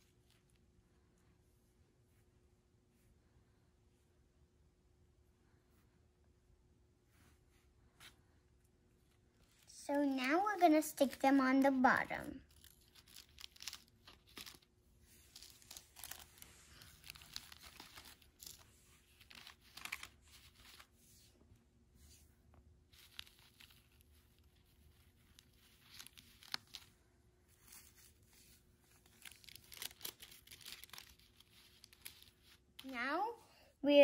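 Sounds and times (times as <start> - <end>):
paper rustling and crinkling: 9.4 - 21.2, 22.9 - 33.0.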